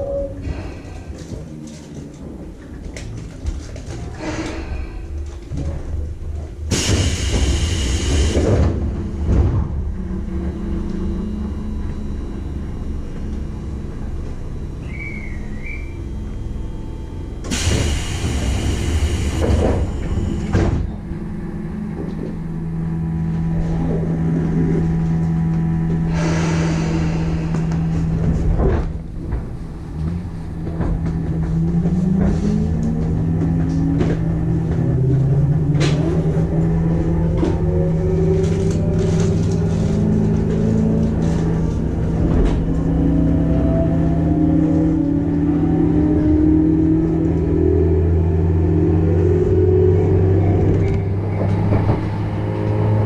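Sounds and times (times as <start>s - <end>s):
low steady rumble: 8.4s - 17.5s
steady low hum: 8.6s - 17.5s.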